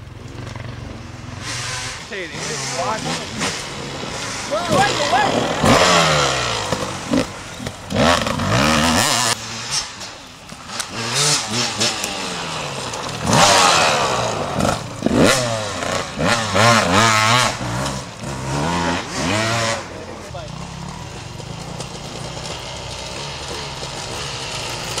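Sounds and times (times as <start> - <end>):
dirt bike engines revving: 0.0 - 25.0.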